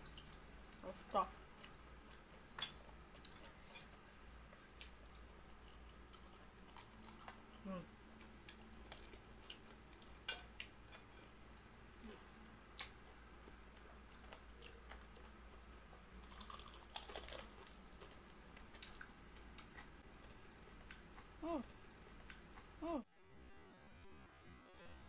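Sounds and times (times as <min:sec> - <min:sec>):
crunching fried chicken: 0:04.8 - 0:07.4, 0:16.2 - 0:22.7.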